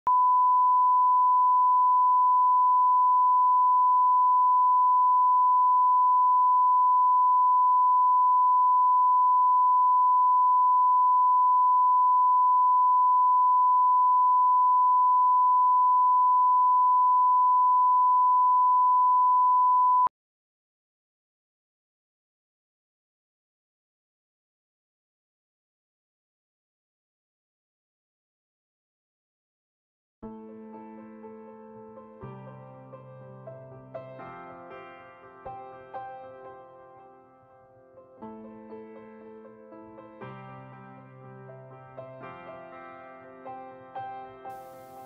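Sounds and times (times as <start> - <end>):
steady sine test tone: 0.1 - 20.1.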